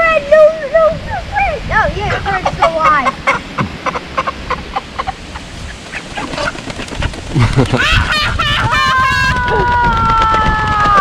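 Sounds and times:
chickens clucking and squawking: 0:01.1 - 0:09.8.

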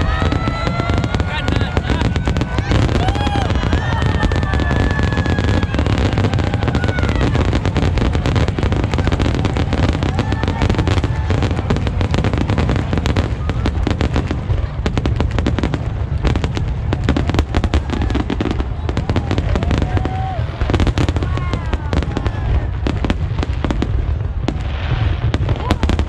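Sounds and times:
deep rumble: 0:00.0 - 0:26.0
fireworks bangs and crackles: 0:00.0 - 0:26.0.

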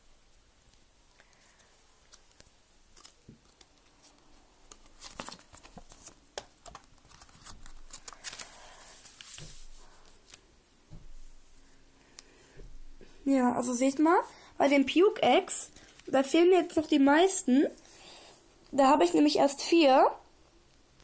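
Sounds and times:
paper crinkling and rustling: 0:01.2 - 0:10.5.

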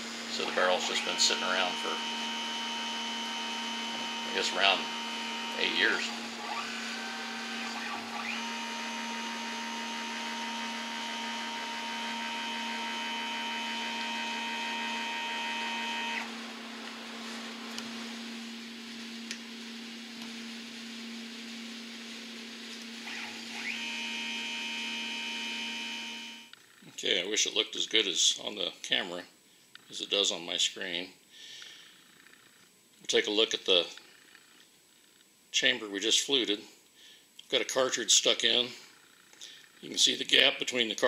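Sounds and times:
high motor whine: 0:00.0 - 0:26.6.

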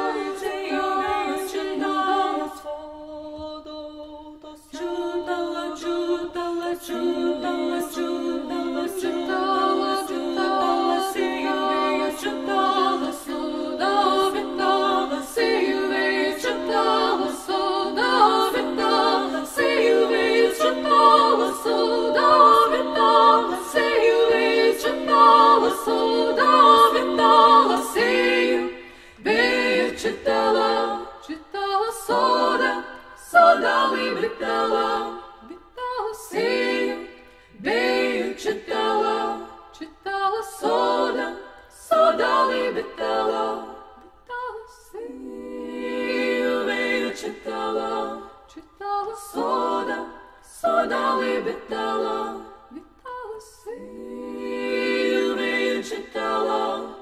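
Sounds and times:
choir singing in harmony: 0:00.0 - 0:57.0.

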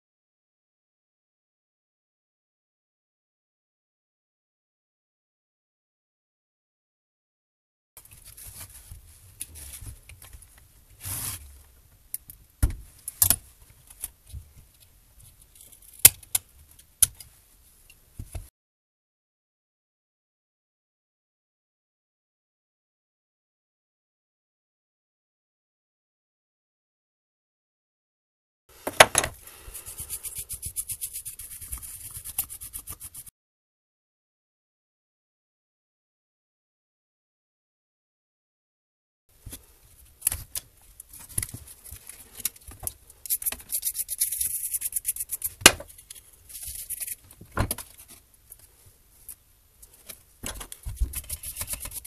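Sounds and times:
brush scrubbing fan blades: 0:29.4 - 0:33.3, 0:51.0 - 0:52.0
plastic and metal parts scraping: 0:49.8 - 0:52.0.

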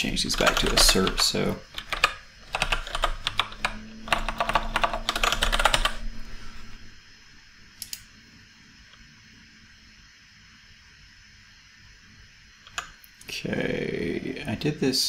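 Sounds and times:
typing on computer keyboard: 0:00.4 - 0:06.0.

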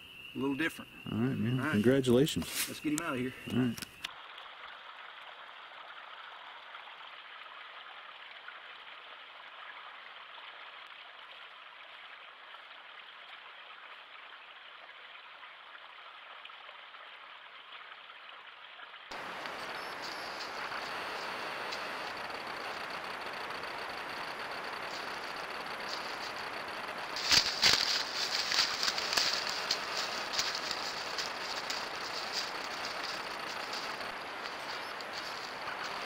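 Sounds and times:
dull hiss: 0:00.0 - 0:04.1, 0:19.1 - 0:36.0
brighter hiss: 0:19.1 - 0:36.0
faint high whine: 0:19.1 - 0:36.0.

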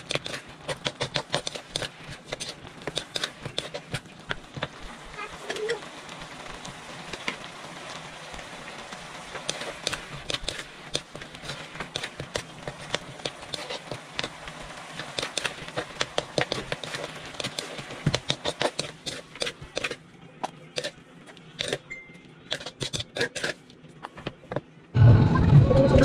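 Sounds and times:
steaming sauce hiss: 0:00.0 - 0:20.0.

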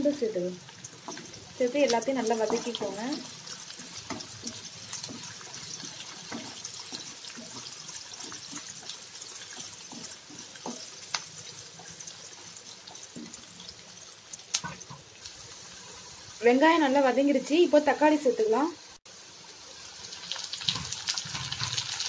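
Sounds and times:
vegetables sizzling in hot oil: 0:00.0 - 0:22.0
spatula scraping and knocking pan: 0:01.0 - 0:12.0, 0:20.7 - 0:21.9.

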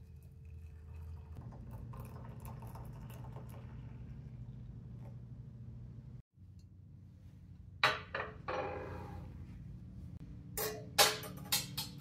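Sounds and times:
cutlery clicking: 0:10.6 - 0:12.0.

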